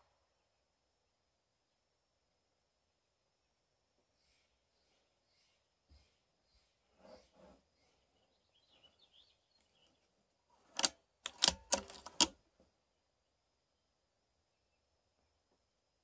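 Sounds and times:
sharp clicks and knocks: 10.6 - 12.4.

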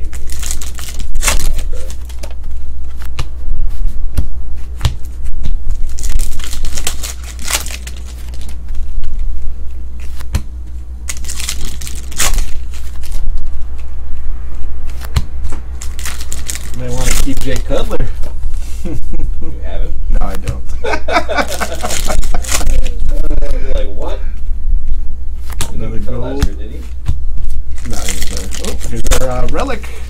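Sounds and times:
foil wrappers crinkling and tearing: 0.0 - 2.5, 5.4 - 9.2, 11.1 - 13.6, 15.7 - 18.1, 21.4 - 23.5, 27.5 - 29.8
steady low hum: 0.0 - 30.0.

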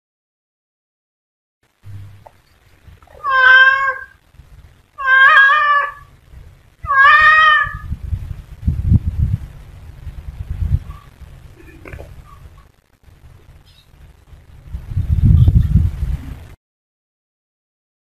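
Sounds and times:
cat meowing: 3.1 - 4.2, 5.0 - 6.1, 6.8 - 7.9.

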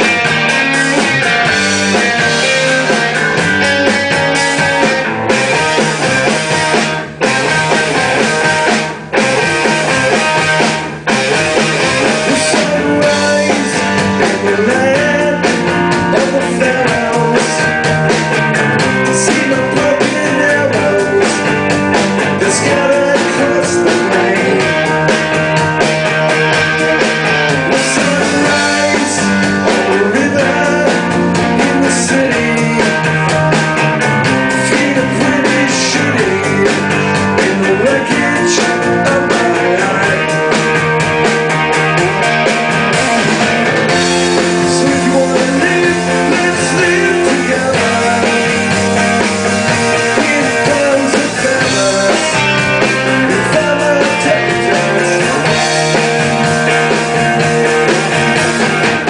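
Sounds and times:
bass guitar: 0.0 - 59.0
drum kit: 0.0 - 59.0
electric guitars: 0.0 - 59.0.

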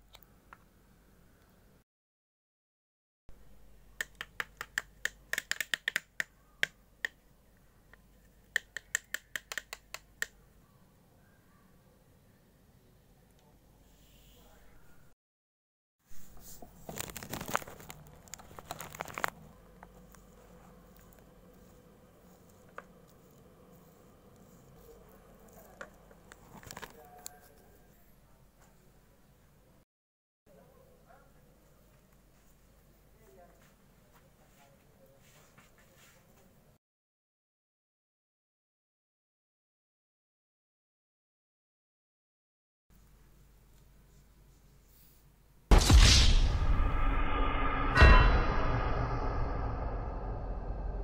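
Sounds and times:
paintbrush clicking on plastic tray: 4.0 - 7.2, 8.5 - 10.4.

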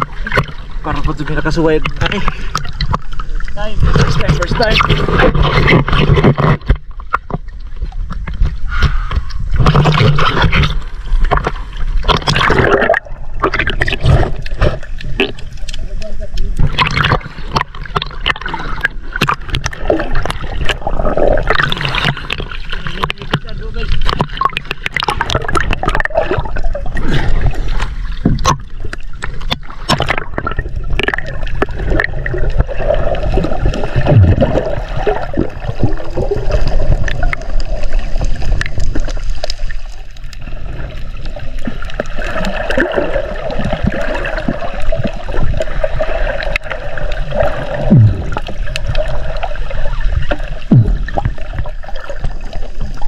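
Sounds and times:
muffled water sloshing and gurgling: 0.0 - 53.0
steady low rumble: 47.8 - 48.6.

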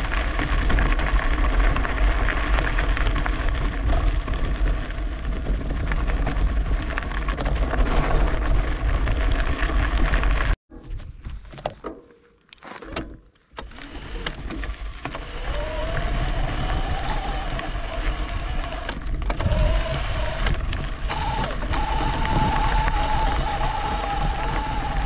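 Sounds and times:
e-bike riding rumble: 0.0 - 11.9, 12.6 - 25.0
electric motor whine: 13.6 - 25.0.

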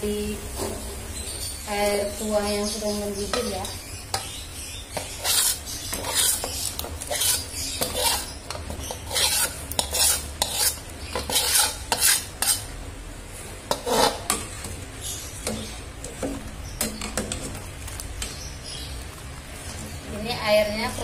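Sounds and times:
metal utensil scraping a wok: 2.7 - 12.8, 13.4 - 18.4.

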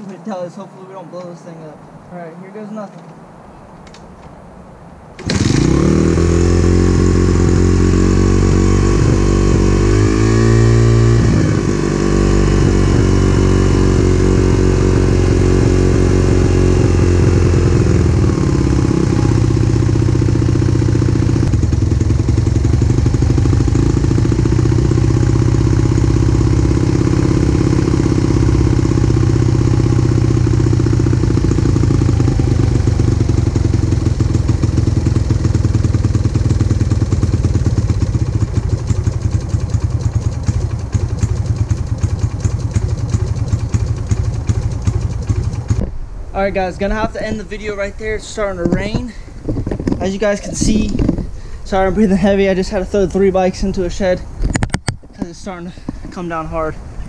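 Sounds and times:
motorcycle engine revving and idling: 5.2 - 45.9.

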